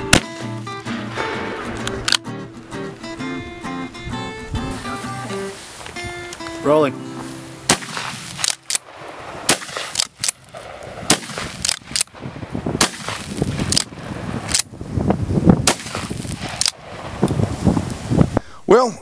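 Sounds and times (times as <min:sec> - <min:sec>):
shotgun shots: 0:00.0 - 0:02.3, 0:07.6 - 0:14.7, 0:15.6 - 0:17.1.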